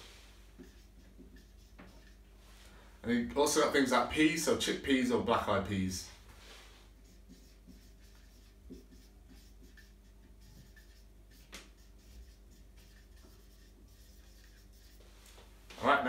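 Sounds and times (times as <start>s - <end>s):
low steady hum: 0.0s - 16.0s
marker pen writing on whiteboard: 0.4s - 2.3s, 6.9s - 15.5s.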